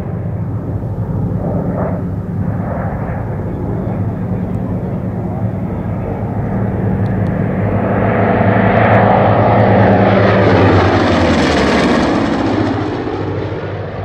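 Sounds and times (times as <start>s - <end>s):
propeller plane engines droning: 0.0s - 14.0s.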